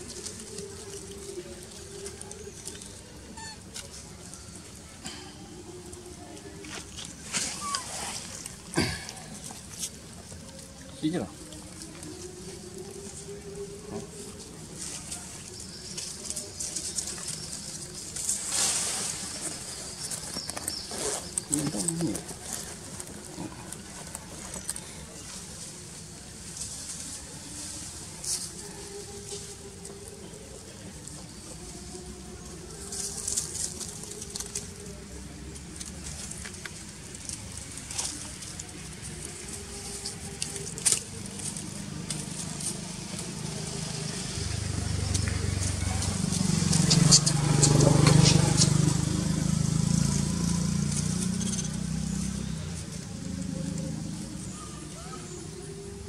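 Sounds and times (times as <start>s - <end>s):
low cooing bird calls: 7.4s - 9.4s
rustling hiss: 11.5s - 55.5s.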